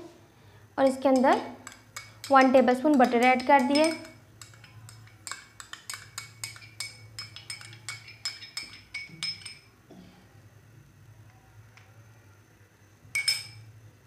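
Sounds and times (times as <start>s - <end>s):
faint low hum: 0.0s - 14.0s
metal spoon clinking on dishes: 0.8s - 9.7s, 13.1s - 13.7s.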